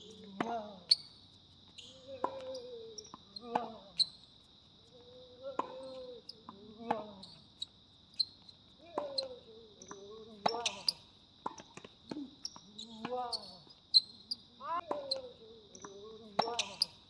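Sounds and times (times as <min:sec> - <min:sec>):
insects droning: 0:00.0 - 0:17.0
tennis balls struck and bouncing: 0:01.8 - 0:03.8, 0:05.5 - 0:07.2, 0:08.9 - 0:13.5, 0:14.8 - 0:17.0.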